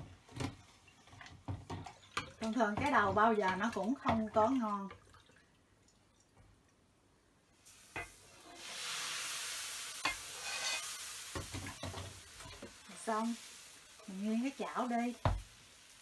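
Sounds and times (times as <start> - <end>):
batter sizzling in hot pan: 7.6 - 16.0.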